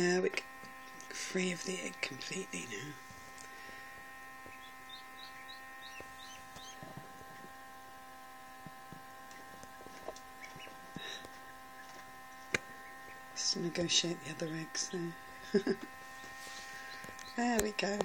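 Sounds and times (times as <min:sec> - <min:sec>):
incubator electric hum: 0:00.0 - 0:18.0
duckling peeping: 0:00.7 - 0:03.0, 0:04.4 - 0:07.6, 0:09.2 - 0:18.0.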